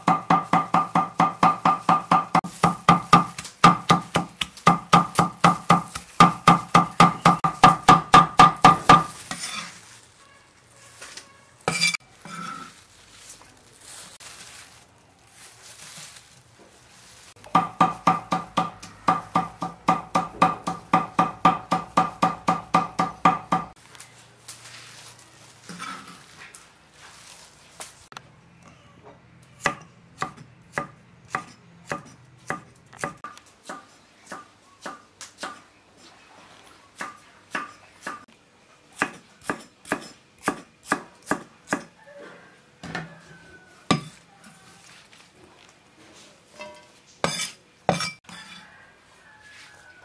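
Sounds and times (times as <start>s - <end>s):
cleaver chopping on wooden block: 0.0s - 9.1s
soft handling sounds: 9.1s - 17.5s, 23.8s - 28.2s, 42.4s - 47.2s.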